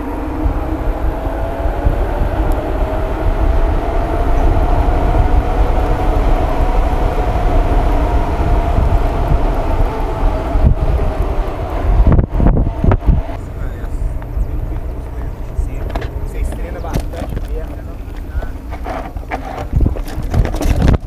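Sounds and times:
bike tyres humming on asphalt: 0.0 - 21.0
wind rumble on microphone: 0.0 - 21.0.

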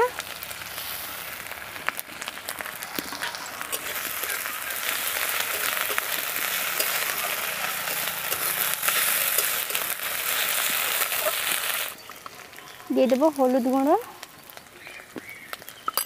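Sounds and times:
paste sizzling in hot oil: 0.0 - 15.9
metal spatula scraping pan: 3.0 - 11.9.

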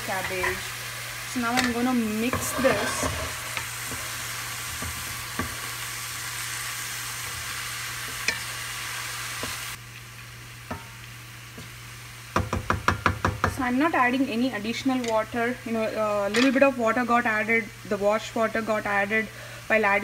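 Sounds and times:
cabbage sizzling in oil: 0.0 - 20.0
wooden spatula scraping: 1.7 - 5.6.

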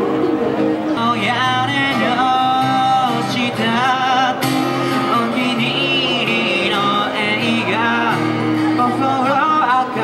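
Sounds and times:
guitar: 0.0 - 10.0
person singing through microphone: 0.7 - 10.0.

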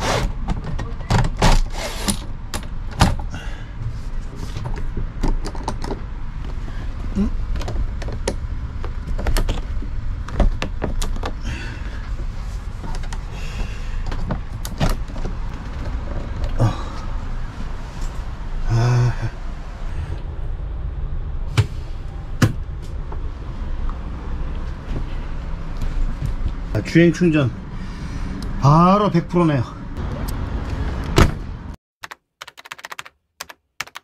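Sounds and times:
window fittings clicking and knocking: 4.6 - 6.0, 7.5 - 11.4
steady low rumble: 6.1 - 28.9.

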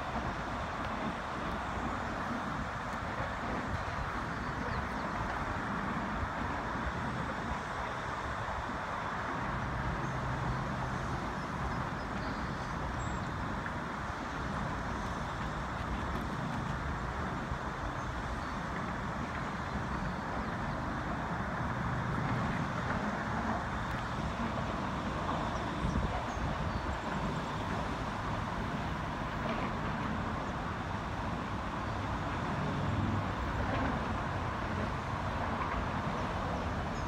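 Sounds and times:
road traffic rumble: 0.0 - 37.0
wind buffeting microphone: 0.0 - 37.0.

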